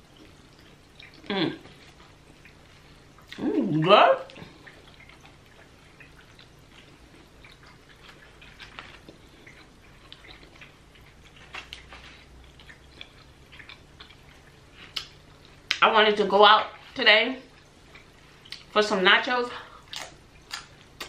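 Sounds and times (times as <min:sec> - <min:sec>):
tortilla chips crackling: 0:04.3 - 0:15.8.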